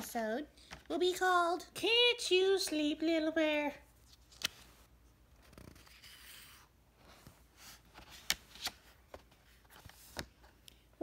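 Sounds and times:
paper pages rustling: 4.0s - 10.6s.

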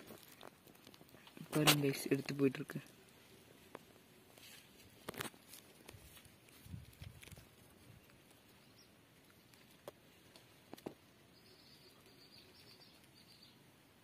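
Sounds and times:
faint high chirping: 11.3s - 13.6s.

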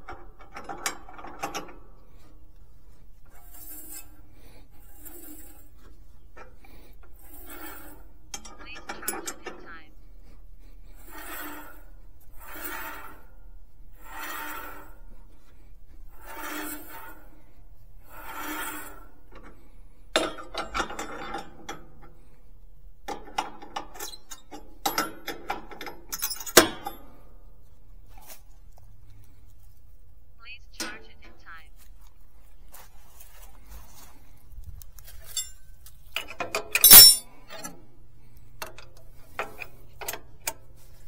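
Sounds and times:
rasping rubbing strokes: 2.1s - 8.2s, 10.2s - 19.2s
sharp metallic clicks and clanks: 36.2s - 37.7s.

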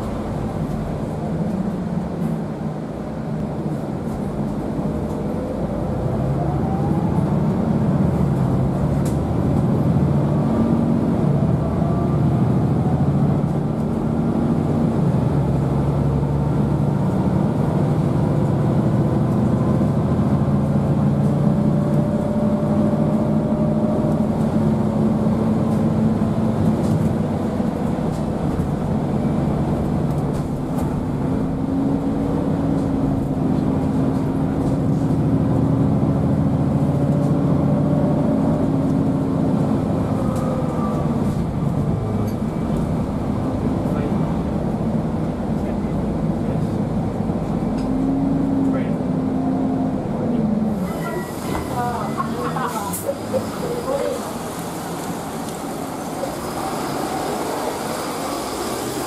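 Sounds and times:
bus diesel engine with gear changes: 0.0s - 59.0s.

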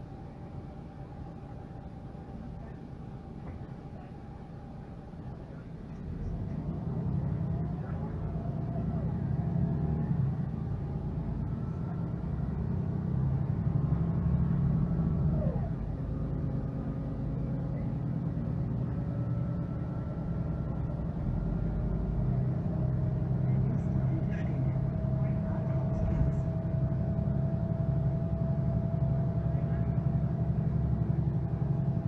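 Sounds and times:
bus diesel engine droning: 0.0s - 32.0s.

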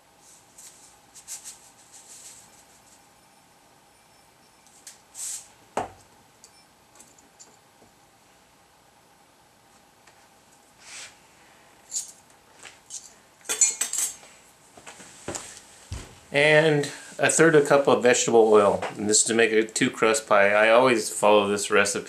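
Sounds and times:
metal spoon clinking against glass: 13.5s - 14.2s.

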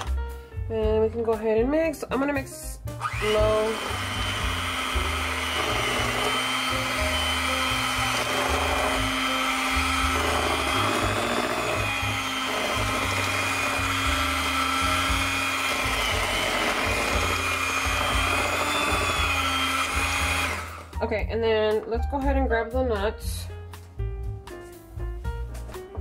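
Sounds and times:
background music: 0.0s - 26.0s
electric hand mixer churning batter: 3.0s - 20.9s.

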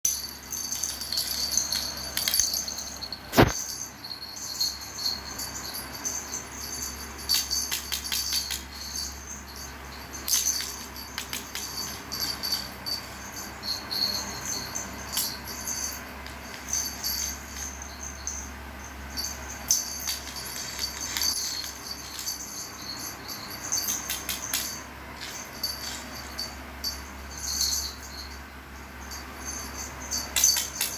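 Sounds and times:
jingle bell toy jingling: 0.0s - 30.9s.

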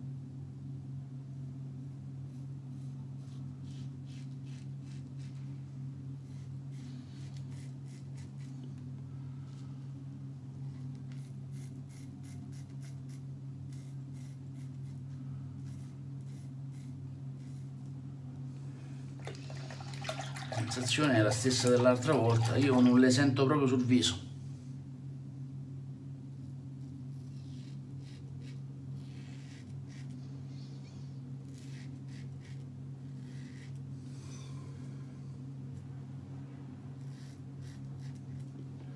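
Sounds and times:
steady low hum: 0.0s - 38.9s
razor scraping stubble: 2.3s - 5.5s, 6.2s - 8.7s, 10.7s - 15.0s, 15.6s - 17.9s, 26.4s - 30.4s, 31.4s - 33.8s, 37.0s - 38.6s.

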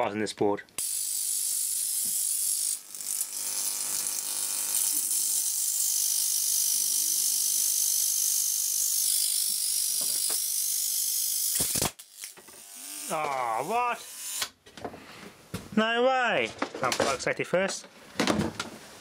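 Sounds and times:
electric arc crackling buzz: 0.8s - 14.6s.

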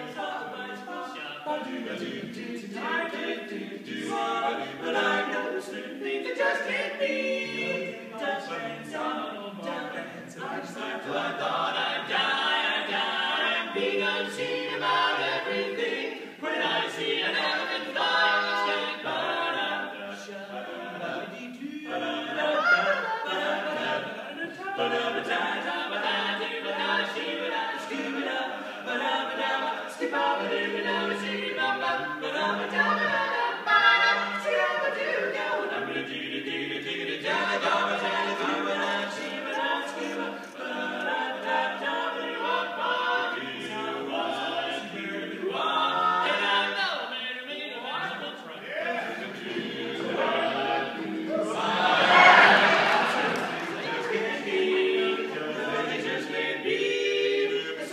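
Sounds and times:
male quartet singing a cappella: 0.0s - 57.9s.

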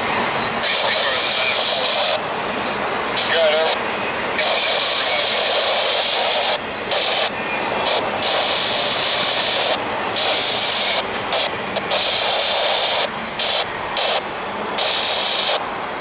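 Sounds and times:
train wheels rumbling and clattering: 0.0s - 16.0s.

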